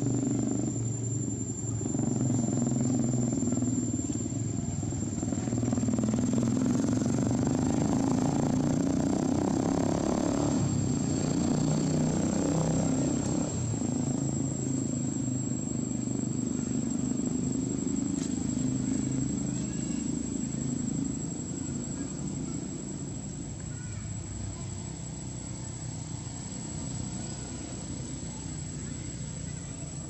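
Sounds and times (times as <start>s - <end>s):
motor engine running: 0.0s - 30.0s.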